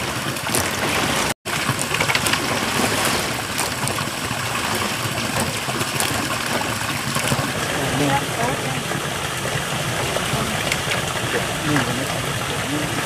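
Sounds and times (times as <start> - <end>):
running water rushing: 0.0 - 13.0
corn cobs knocking on bamboo: 3.5 - 7.4.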